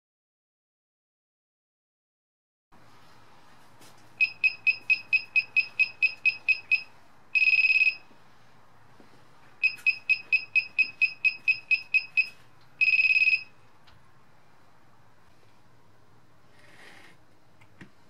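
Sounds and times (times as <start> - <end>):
buzzer beeping: 4.2 - 8.1, 9.6 - 13.6
long beep: 4.2 - 8.1, 9.6 - 13.6
short high beeps: 4.2 - 8.1, 9.6 - 13.5.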